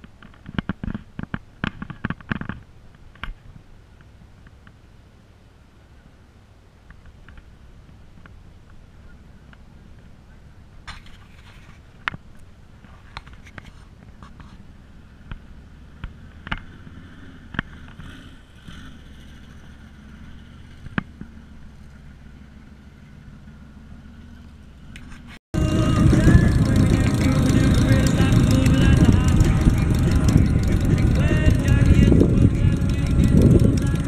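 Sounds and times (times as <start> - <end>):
steady low rumble: 25.6 - 34.0.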